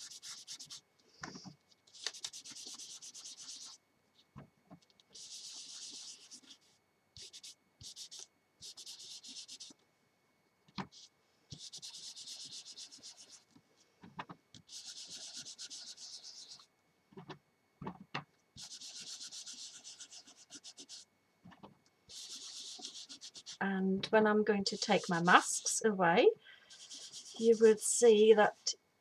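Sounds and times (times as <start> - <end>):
wipe rubbing over cardstock: 0.0 - 3.8, 5.1 - 9.7, 10.9 - 13.5, 14.7 - 16.7, 18.6 - 21.0, 22.1 - 23.6, 26.7 - 27.7.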